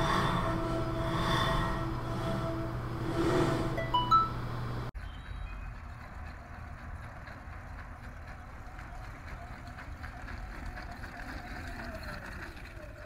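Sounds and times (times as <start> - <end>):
faint wavering whine: 0.0 - 4.9.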